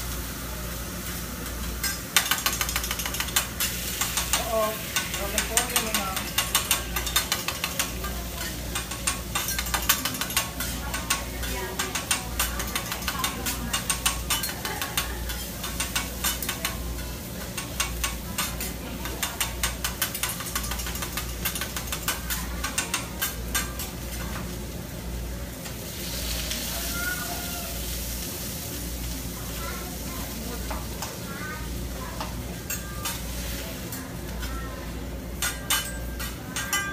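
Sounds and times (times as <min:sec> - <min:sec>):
food sizzling on a griddle: 0:00.0 - 0:36.9
metal utensils scraping a griddle: 0:01.0 - 0:24.6, 0:35.4 - 0:36.9.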